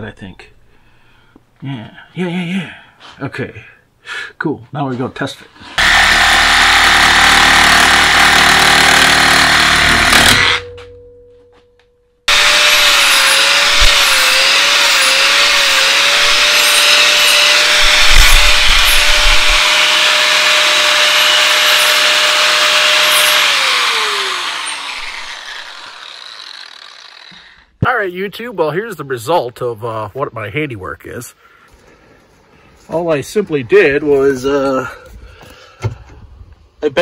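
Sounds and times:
reciprocating saw cutting metal: 0:05.6 - 0:10.7, 0:12.3 - 0:27.6
angle grinder whining: 0:05.6 - 0:10.8, 0:12.3 - 0:27.8.

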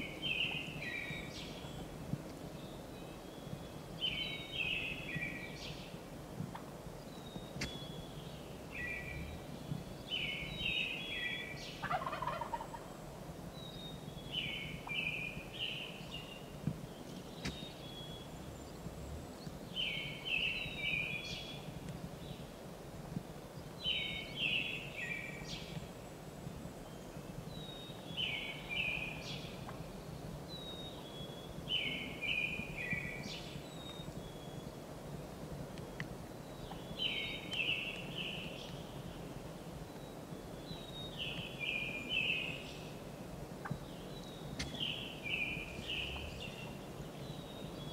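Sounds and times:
songbird high falling song: 0:00.0 - 0:06.1, 0:07.0 - 0:12.9, 0:13.5 - 0:22.5, 0:23.6 - 0:34.9, 0:35.7 - 0:47.9
turkey gobbling: 0:11.8 - 0:12.9.

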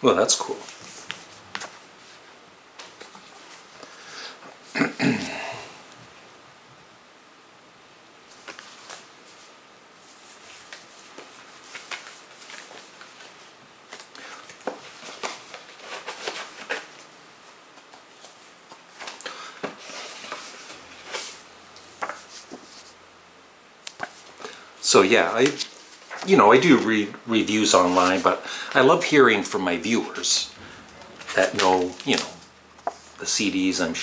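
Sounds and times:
cardboard sleeves rustling and clicking: 0:00.4 - 0:02.2, 0:10.1 - 0:17.1, 0:17.7 - 0:23.0, 0:31.2 - 0:33.2.

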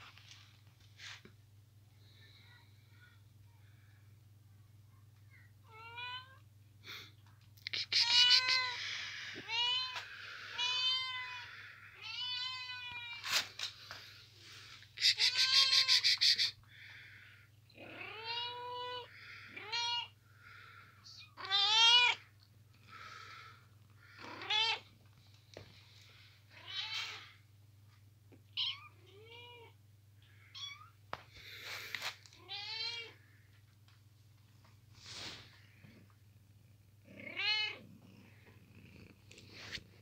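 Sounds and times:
faint low hum: 0:00.0 - 0:40.0
kittens mewing: 0:07.6 - 0:13.4, 0:14.9 - 0:16.7.

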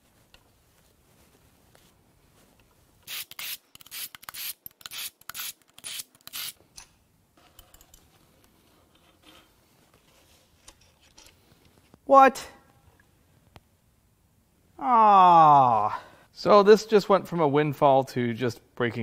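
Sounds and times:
hand ratchet clicking: 0:03.0 - 0:06.6
metal parts handling noises: 0:07.4 - 0:11.9.

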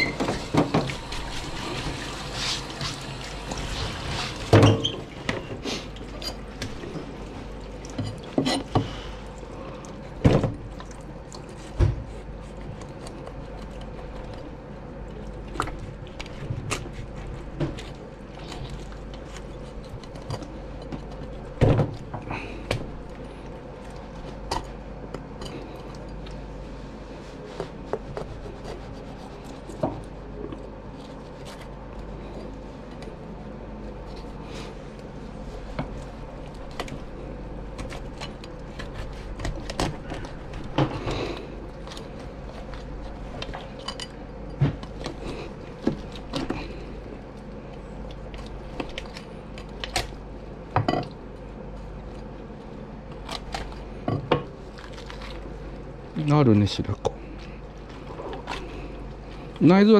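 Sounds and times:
tap water running: 0:00.0 - 0:05.4.

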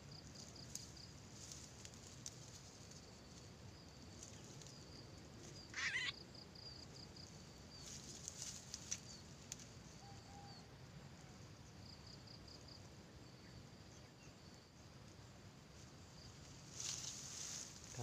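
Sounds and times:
insects trilling: 0:00.0 - 0:18.0
dry brush crackling: 0:00.5 - 0:03.4, 0:07.8 - 0:09.8, 0:16.6 - 0:18.0.

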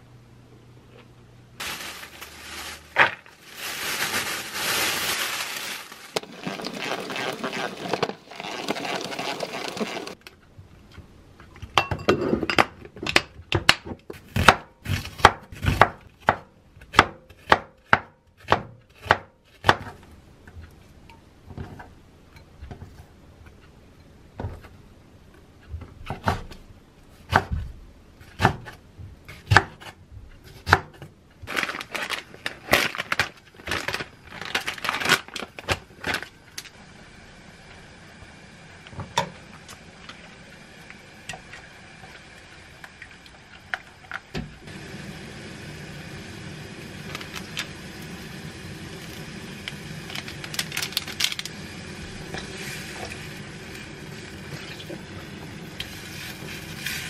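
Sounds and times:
plastic packaging crinkling: 0:01.6 - 0:10.2, 0:31.5 - 0:36.8, 0:47.0 - 0:47.8, 0:49.6 - 0:51.6
rustling: 0:01.6 - 0:10.2.

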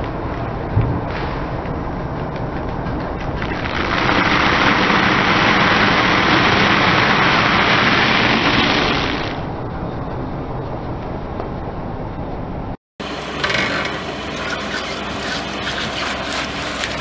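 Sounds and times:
dry noodles crunching under tyre: 0:13.1 - 0:17.0.

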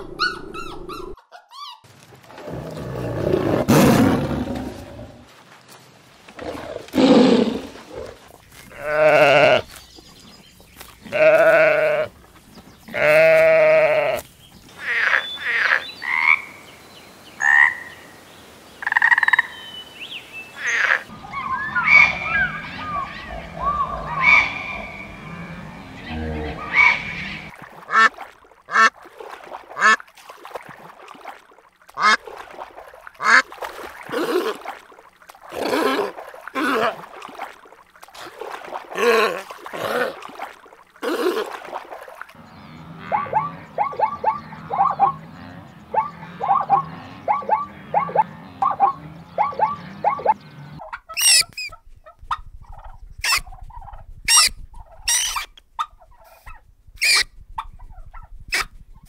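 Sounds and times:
tiger roaring: 0:02.3 - 0:05.3
frogs chirping and clicking: 0:18.8 - 0:19.6
long wavering animal calls: 0:20.6 - 0:27.5, 0:42.4 - 0:50.8.

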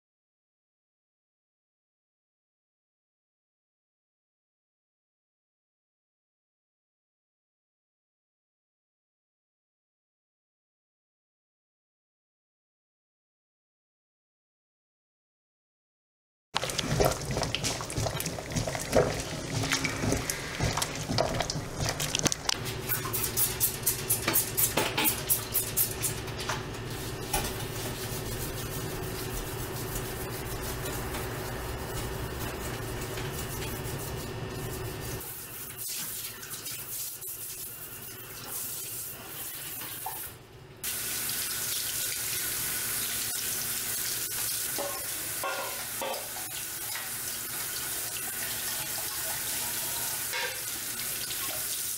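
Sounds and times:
water boiling hard: 0:16.6 - 0:23.3
faucet water splashing on strainer: 0:16.6 - 0:26.2, 0:40.9 - 0:51.9
scrubbing at sink: 0:16.6 - 0:40.3, 0:41.6 - 0:51.9.

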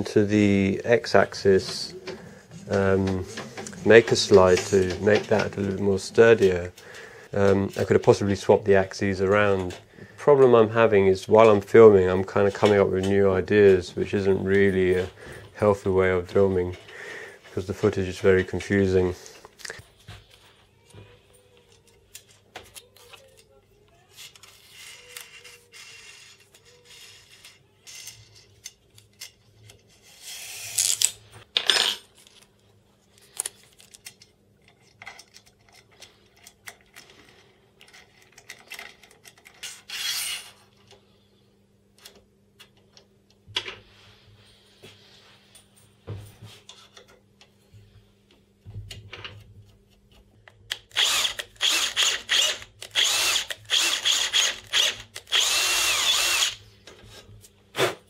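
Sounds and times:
cordless drill bursts: 0:50.9 - 0:56.6.

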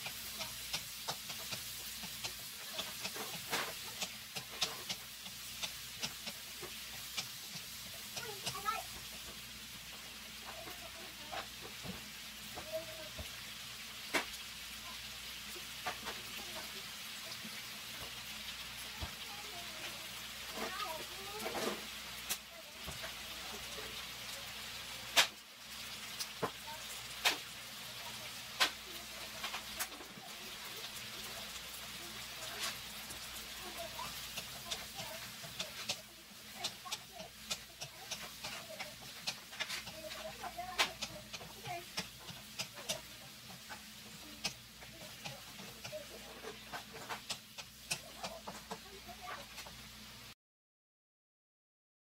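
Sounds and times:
wooden spatula knocking pan: 0:00.0 - 0:13.3, 0:32.2 - 0:49.8
food sizzling in a wok: 0:00.0 - 0:50.4.

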